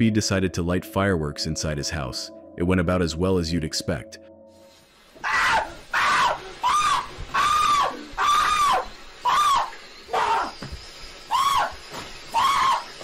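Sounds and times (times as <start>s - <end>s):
man screaming in high bursts: 5.2s - 10.6s, 11.3s - 13.0s.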